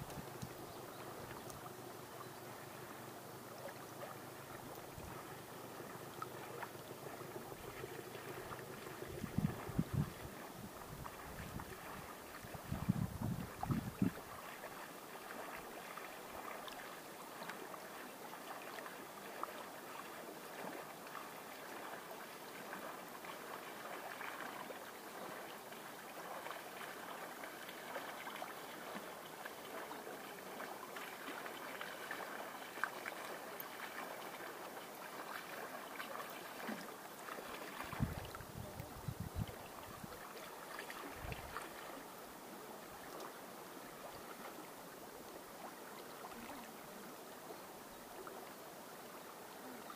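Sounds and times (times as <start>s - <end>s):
river water lapping against bank: 0.0s - 49.9s
wind buffeting microphone: 9.0s - 14.2s, 37.8s - 40.1s.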